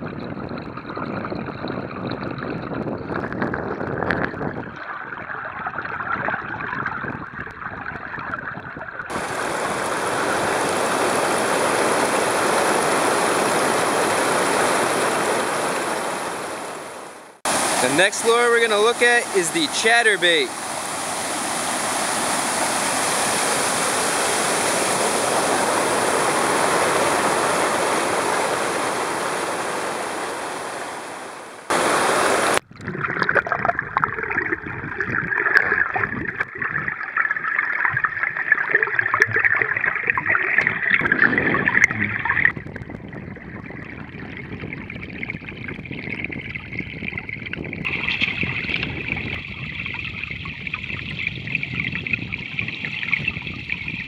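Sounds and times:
underwater rushing water hiss: 0:09.1 - 0:32.6.

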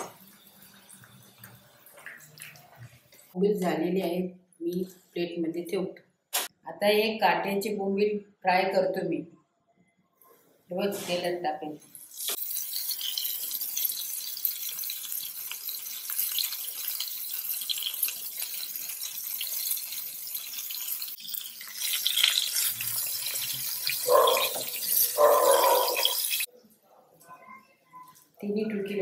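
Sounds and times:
fish sizzling in hot oil: 0:00.0 - 0:02.6, 0:11.9 - 0:26.5
metal spatula in pan: 0:12.1 - 0:26.5.

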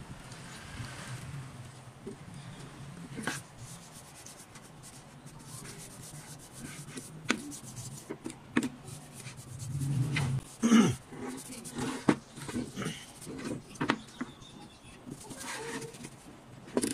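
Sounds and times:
cloth rag rubbing wood: 0:03.2 - 0:08.1, 0:08.8 - 0:13.8, 0:15.1 - 0:16.2.

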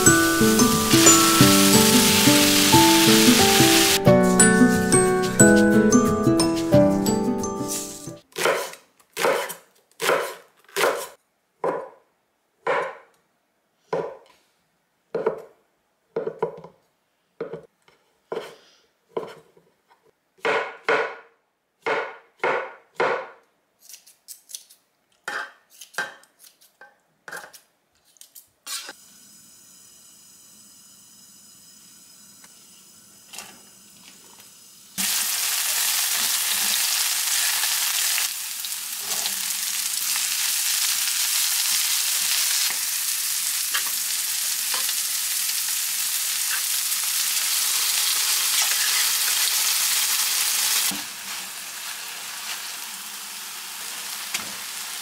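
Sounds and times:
onions sizzling in hot oil: 0:00.0 - 0:05.1, 0:29.0 - 0:55.0
knife chopping on wooden board: 0:08.4 - 0:12.0, 0:12.7 - 0:13.0, 0:18.3 - 0:19.4, 0:20.4 - 0:21.2, 0:21.8 - 0:23.4.

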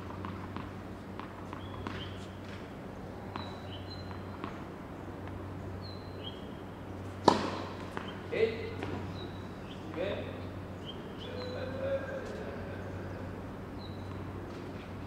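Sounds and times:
racket striking tennis ball: 0:00.0 - 0:02.6, 0:07.2 - 0:08.2
low electrical hum: 0:00.0 - 0:15.0.

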